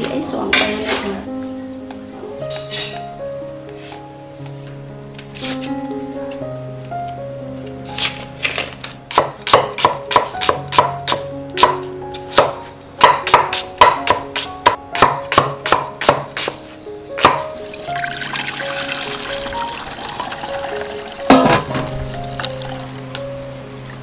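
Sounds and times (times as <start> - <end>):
cleaver chopping on wooden block: 9.1 - 16.6, 17.2 - 17.4.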